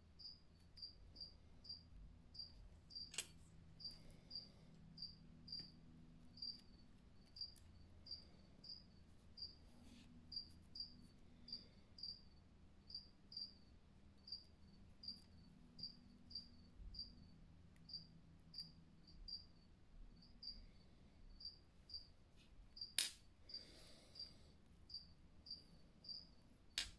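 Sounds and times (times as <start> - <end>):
faint insect chirping: 0.0 - 26.9.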